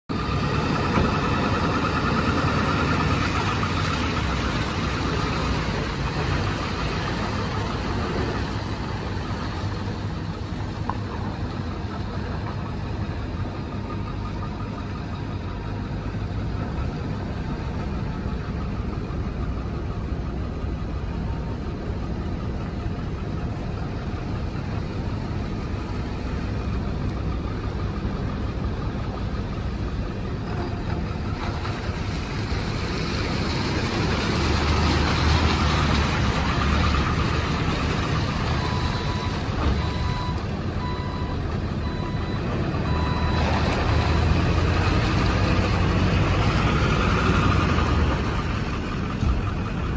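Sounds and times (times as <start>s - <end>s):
diesel truck engine rumble: 0.0s - 49.9s.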